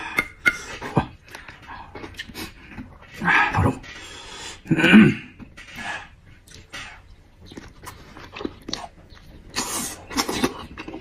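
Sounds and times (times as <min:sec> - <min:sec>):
chewing with wet mouth clicks: 0:07.4 - 0:11.0.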